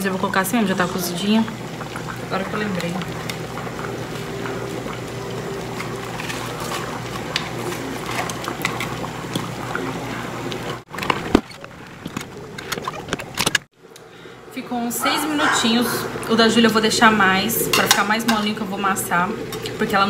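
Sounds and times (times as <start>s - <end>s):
soup bubbling in a pot: 0.0s - 13.3s.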